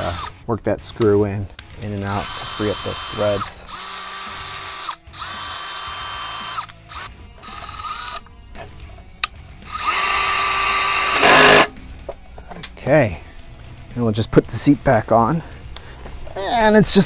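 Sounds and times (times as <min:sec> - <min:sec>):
cordless drill motor whine: 0:02.2 - 0:08.2, 0:09.7 - 0:11.7.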